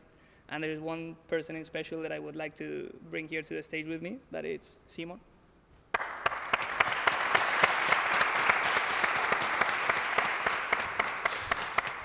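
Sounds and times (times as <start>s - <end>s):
audience applauding: 5.9s - 12.0s.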